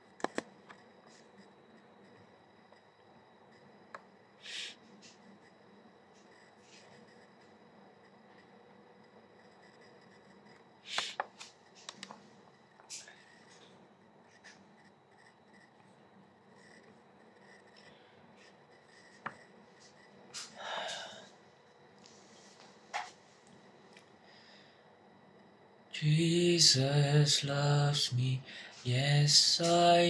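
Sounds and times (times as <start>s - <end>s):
short breath: 20.6s - 21.3s.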